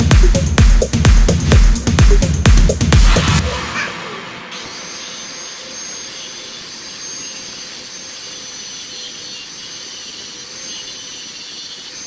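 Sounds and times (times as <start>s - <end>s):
angle grinder grinding steel: 3.0s - 12.0s.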